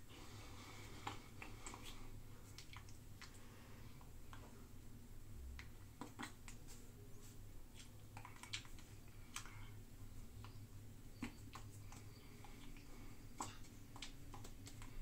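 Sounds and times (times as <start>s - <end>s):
low steady hum: 0.0s - 15.0s
hands clicking and tapping: 5.6s - 6.8s, 10.4s - 15.0s.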